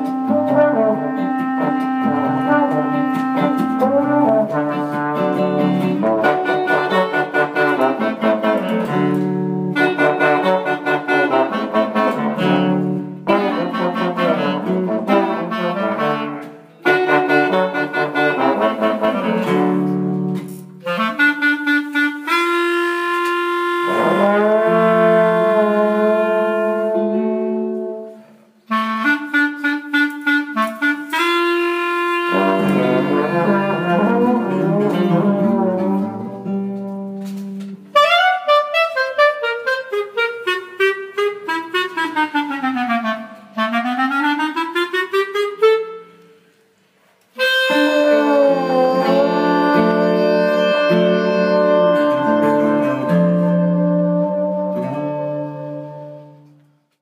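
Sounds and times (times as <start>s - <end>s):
acoustic guitar: 0.0s - 16.8s, 32.3s - 38.5s, 47.8s - 56.6s
trombone: 0.0s - 46.2s, 47.4s - 56.5s
clarinet: 0.0s - 57.0s.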